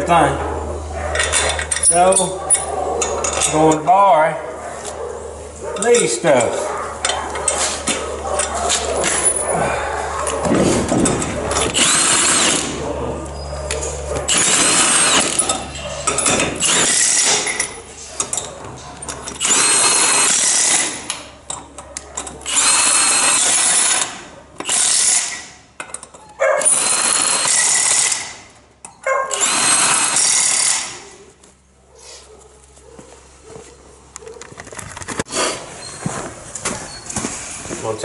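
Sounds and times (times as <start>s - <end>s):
impact wrench bursts: 10.4s - 12.8s, 14.3s - 18.5s, 19.2s - 28.6s, 29.3s - 31.1s.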